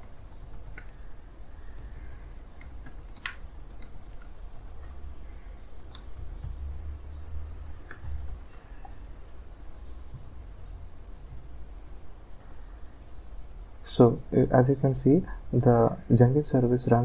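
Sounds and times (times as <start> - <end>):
keyboard keys clicking: 0.0 - 1.0, 1.7 - 5.0, 7.6 - 8.4
low steady hum: 0.0 - 17.0.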